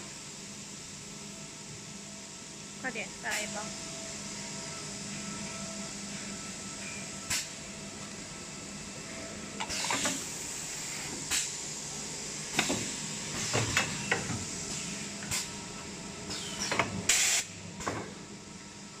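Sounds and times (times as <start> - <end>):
pneumatic hisses and clacks: 7.3 - 7.6, 9.6 - 11.6, 12.5 - 15.6, 16.3 - 18.2.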